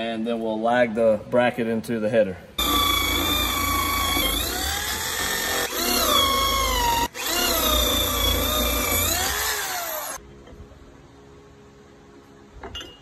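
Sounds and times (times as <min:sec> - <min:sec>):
electric drill boring into wood: 0:02.6 - 0:10.2.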